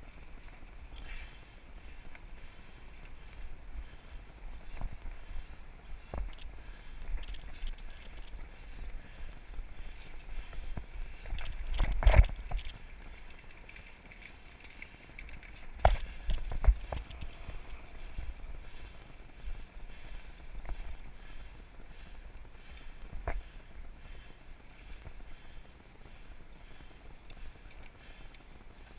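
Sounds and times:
bike rattling: 0.0s - 28.9s
bike tyre noise on dirt: 0.0s - 28.9s.

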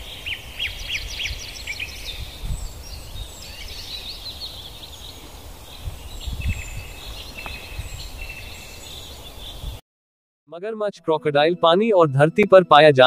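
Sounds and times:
birds singing and chirping: 0.0s - 9.8s.

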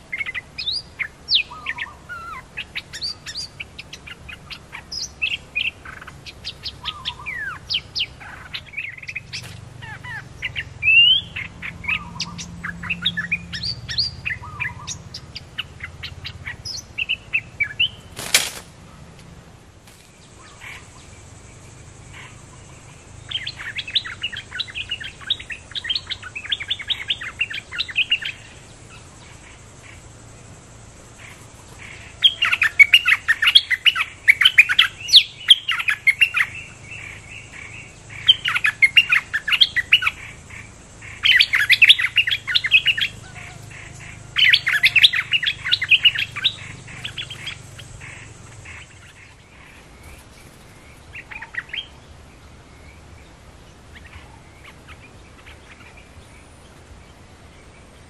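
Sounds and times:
bulbuls chattering song: 0.0s - 58.0s.

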